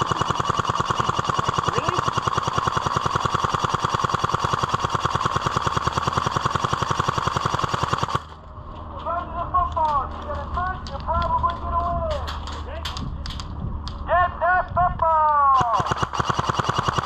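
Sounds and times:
airsoft gun full-auto clatter: 0.0 - 8.4, 15.6 - 17.0.

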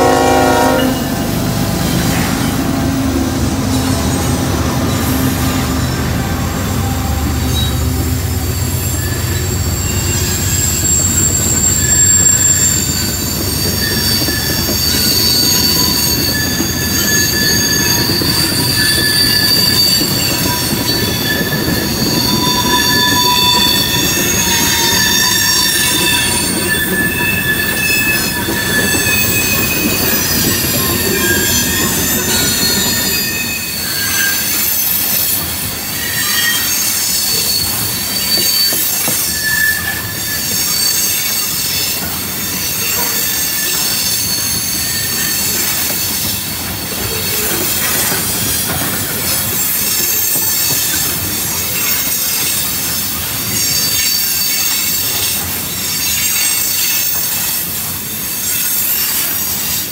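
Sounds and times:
wheel flanges squealing on rail: 0.0 - 59.9
wheels rumbling on track: 0.0 - 59.9.

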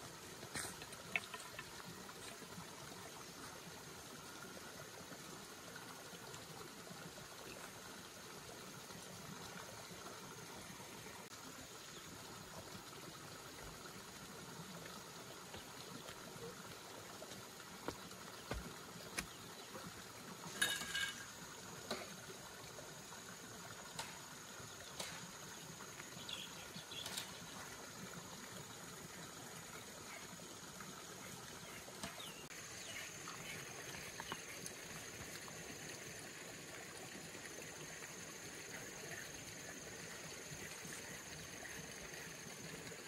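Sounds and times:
faint trickling water: 0.0 - 43.0.

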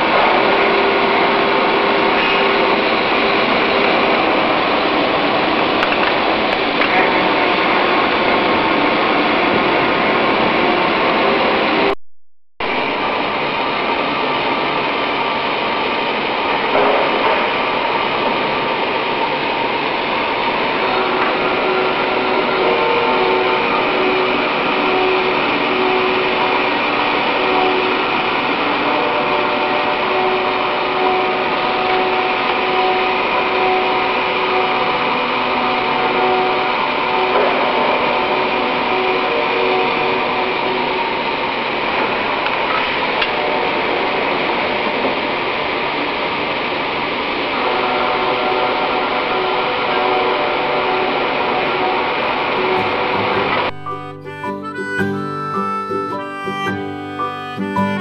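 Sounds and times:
steady whining tones: 46.9 - 58.0.

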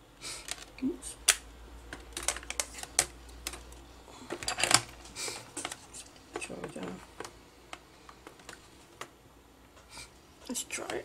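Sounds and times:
plastic bag rustling: 2.0 - 7.3.

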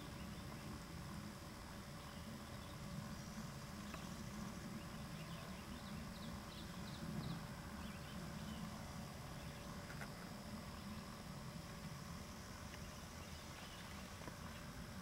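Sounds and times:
low outdoor rumble: 0.0 - 15.0
small birds chirping: 1.9 - 11.4, 12.6 - 14.8.

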